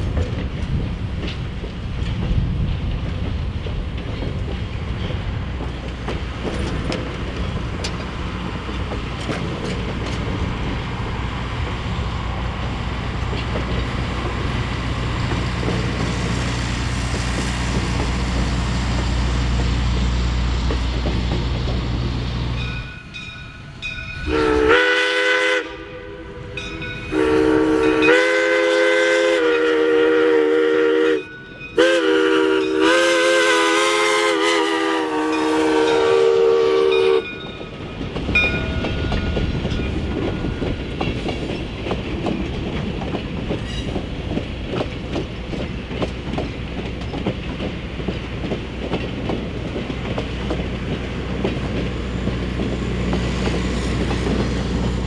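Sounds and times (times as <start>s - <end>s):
train wheels clacking on rails: 0.0s - 55.0s
steam locomotive whistle: 24.2s - 37.5s.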